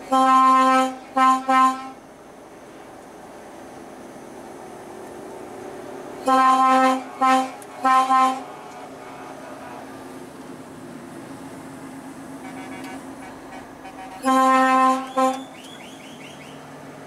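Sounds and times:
truck air horn: 0.0 - 2.0, 6.2 - 9.9, 12.4 - 16.6
road noise inside cab: 0.0 - 17.0
truck engine droning: 0.0 - 17.0.

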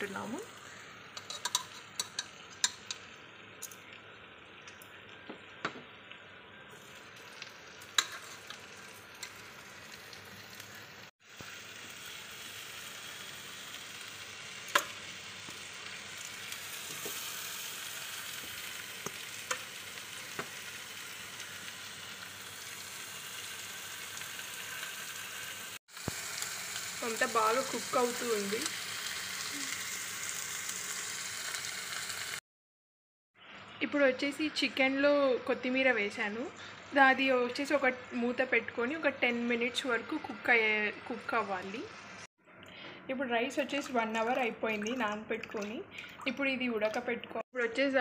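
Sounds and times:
gravy sizzling in a pan: 0.0 - 32.4, 33.4 - 42.3
metal tongs clinking on pots: 1.2 - 3.0, 7.9 - 9.4.

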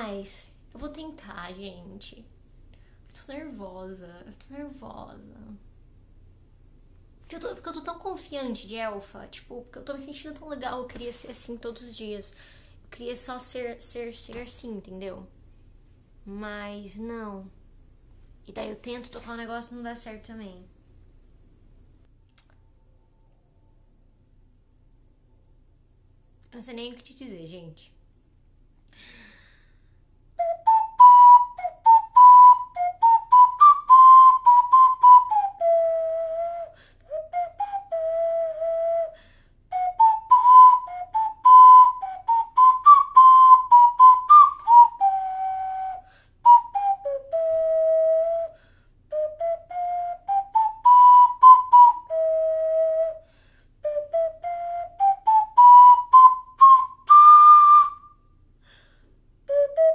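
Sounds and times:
ocarina melody: 30.4 - 53.2, 53.8 - 58.2, 59.5 - 59.9.

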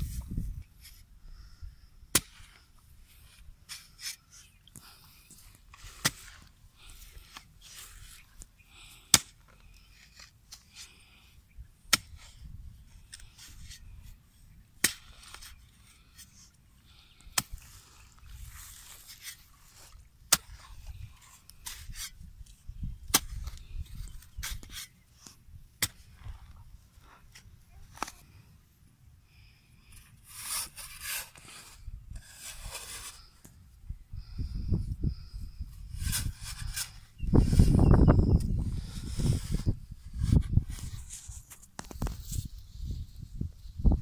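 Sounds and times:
hoe striking hard soil: 2.1 - 2.6, 5.3 - 6.5, 9.0 - 9.5, 11.9 - 12.3, 14.8 - 15.5, 23.0 - 23.8, 25.8 - 26.4
earth scraping and crumbling: 2.1 - 11.2, 14.9 - 28.4, 29.8 - 33.6, 34.6 - 44.0.

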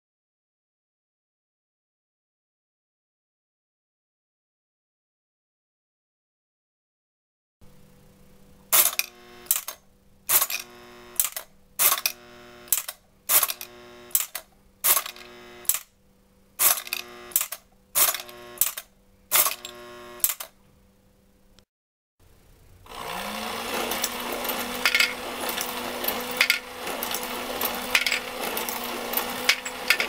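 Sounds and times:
steady electric hum: 7.6 - 21.6, 22.2 - 30.0
mechanism clacking: 8.7 - 15.9, 16.6 - 20.6, 23.7 - 30.0.

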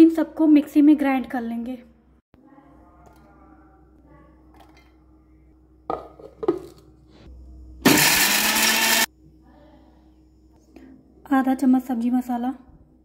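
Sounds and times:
mixer grinder running: 7.8 - 9.1.

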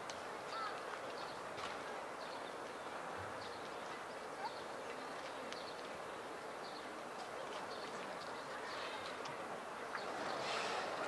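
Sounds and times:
background hiss: 8.3 - 11.0.

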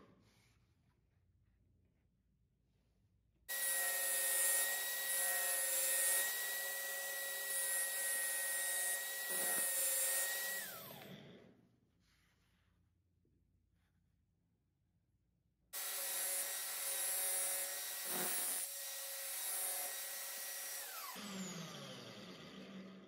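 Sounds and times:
electric drill motor whine: 3.5 - 11.4, 17.2 - 23.0.

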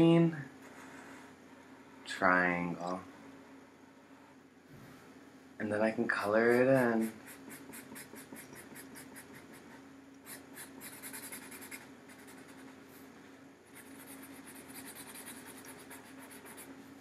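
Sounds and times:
marker scribbling on paper: 6.2 - 12.8, 13.7 - 16.7.

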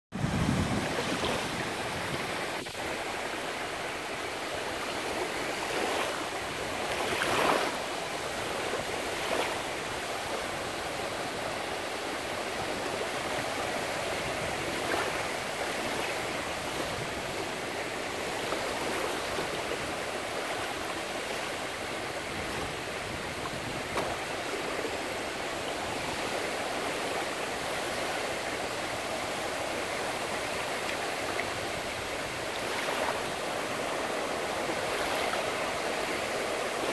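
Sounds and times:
small surf breaking on sand: 0.2 - 27.9.

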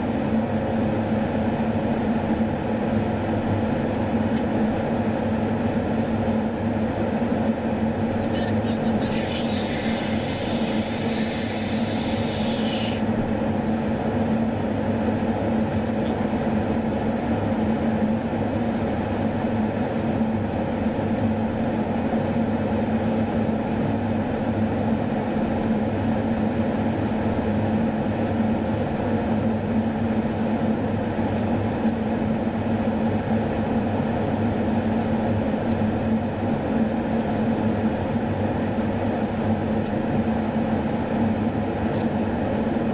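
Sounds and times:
aircraft engines droning: 0.0 - 42.9
high hiss: 9.1 - 13.0.

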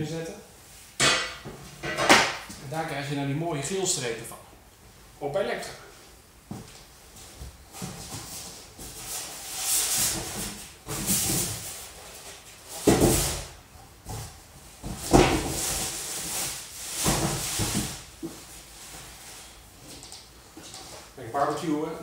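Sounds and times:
cardboard and packaging rustling: 6.6 - 21.6.

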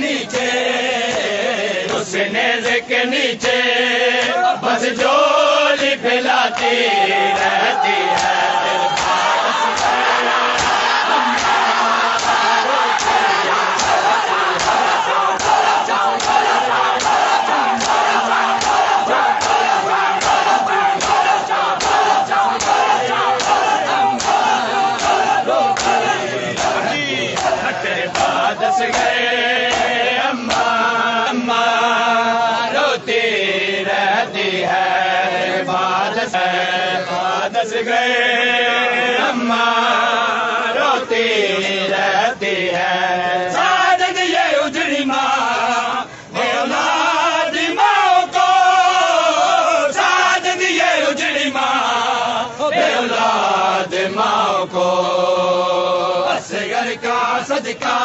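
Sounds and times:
men chanting in chorus: 0.0 - 58.0
hands slapping chests: 7.3 - 10.0, 10.6 - 26.8, 27.4 - 30.7.

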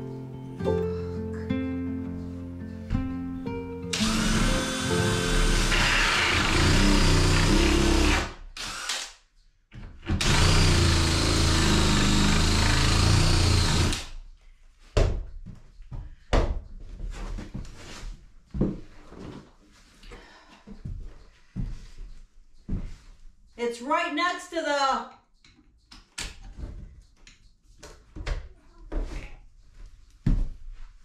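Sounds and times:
drill boring into wood: 3.9 - 9.2, 10.2 - 14.1.

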